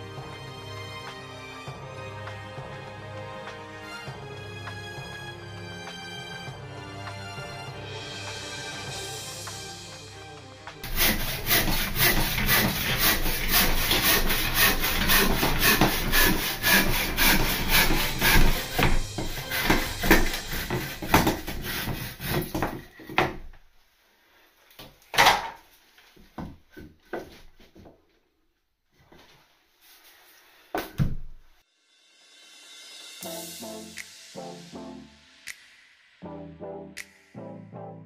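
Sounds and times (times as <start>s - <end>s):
hand saw cutting wood: 10.8s - 23.4s.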